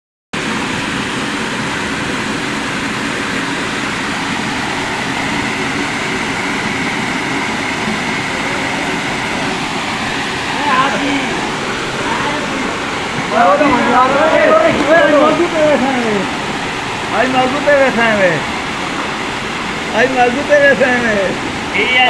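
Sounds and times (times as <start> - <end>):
stream water over stones: 0.4 - 22.0.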